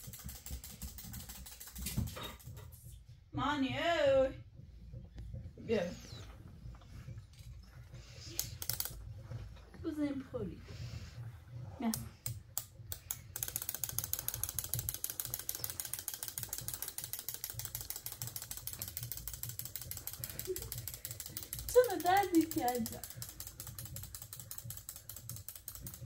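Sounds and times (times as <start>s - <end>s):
rapid mechanical clicking: 0.0s - 2.6s, 7.4s - 10.0s, 11.2s - 26.0s
person speaking: 21.7s - 23.1s.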